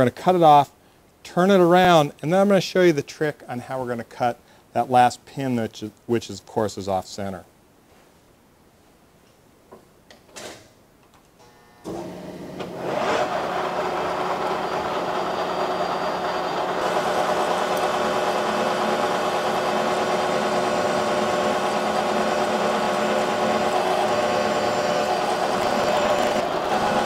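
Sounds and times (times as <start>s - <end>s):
metal lathe machining steel: 12.7s - 27.0s.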